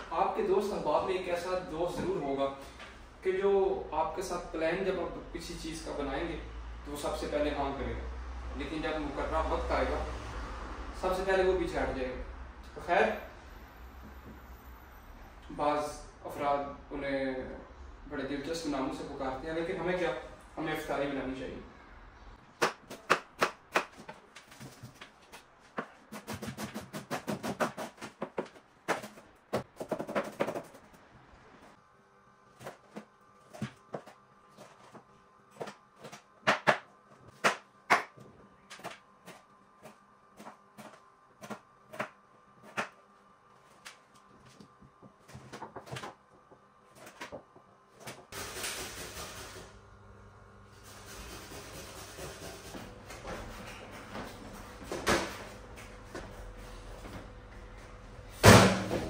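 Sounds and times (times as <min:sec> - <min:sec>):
knife chopping on plastic board: 0:35.6 - 0:43.0.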